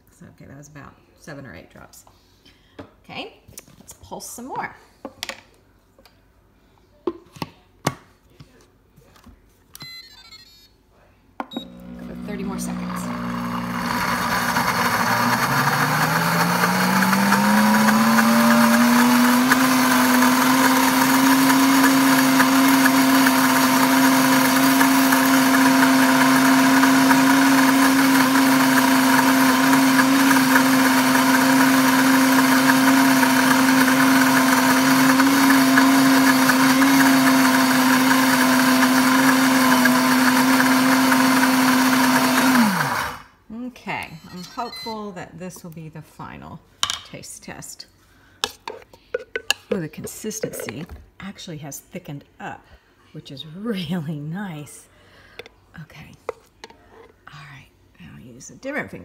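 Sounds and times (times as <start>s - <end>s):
blender motor running: 11.6s - 43.3s.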